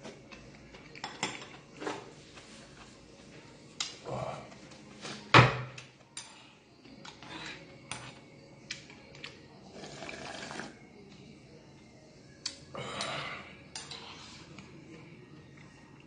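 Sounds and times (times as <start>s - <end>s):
slurping broth: 9.7s - 10.8s.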